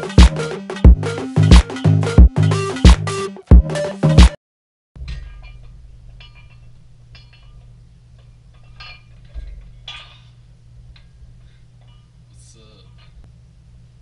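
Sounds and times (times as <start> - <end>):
weight plates clinking: 5.0 - 12.2.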